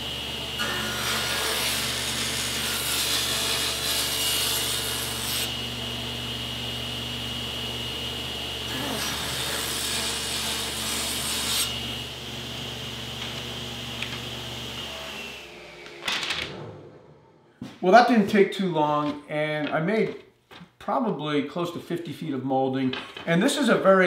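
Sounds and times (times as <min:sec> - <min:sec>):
table saw motor hum: 0:00.0 - 0:17.4.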